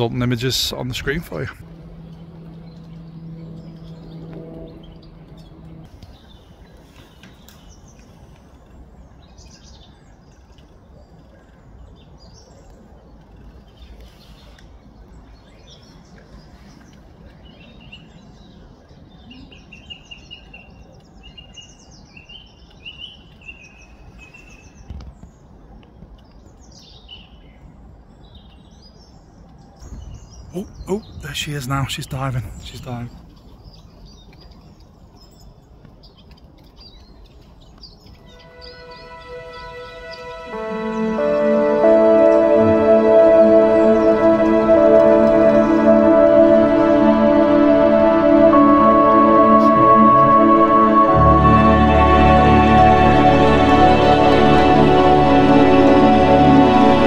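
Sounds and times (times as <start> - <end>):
low steady hum: 0.0 - 6.3
outdoor background noise: 0.0 - 57.0.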